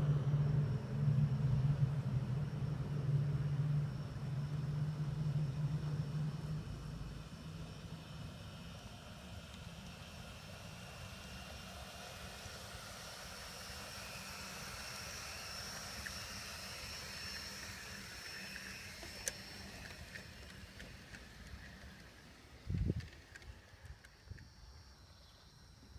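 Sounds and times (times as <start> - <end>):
model train motor whine: 0.0 - 25.9
wheels clicking over rail joints: 15.9 - 25.1.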